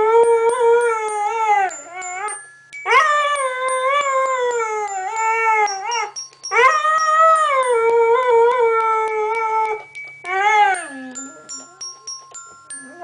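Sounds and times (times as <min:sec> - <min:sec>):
toy piano notes tinkling: 0:00.0 - 0:13.0
dog howling: 0:02.9 - 0:12.0.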